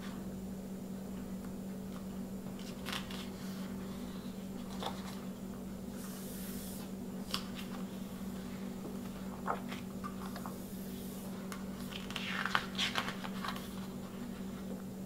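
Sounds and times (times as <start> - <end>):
steady low hum: 0.0 - 15.0
stiff paper rustling: 9.0 - 14.7.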